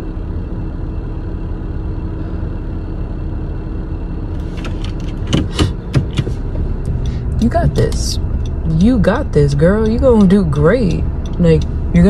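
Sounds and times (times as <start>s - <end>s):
car engine idling rumble: 0.0s - 12.0s
sharp clicks and rustles: 4.4s - 11.9s.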